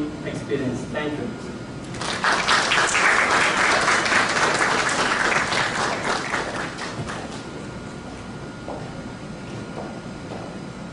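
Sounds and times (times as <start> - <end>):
audience applauding: 1.9 - 7.5.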